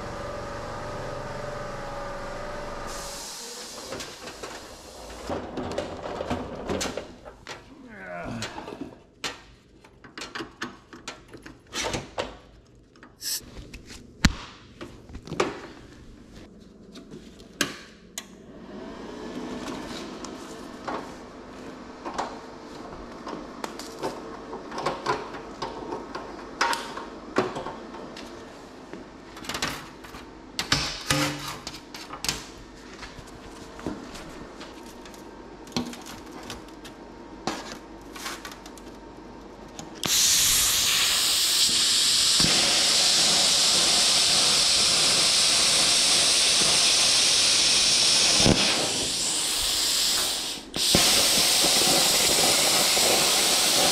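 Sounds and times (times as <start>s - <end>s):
steady machine hum: 0.0s - 6.4s
knocks clanks and rattles of tools: 3.8s - 7.7s.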